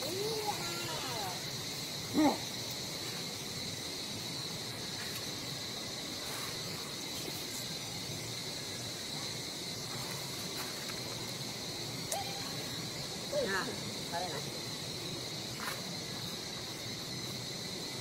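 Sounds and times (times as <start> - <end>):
insects buzzing: 0.0 - 18.0.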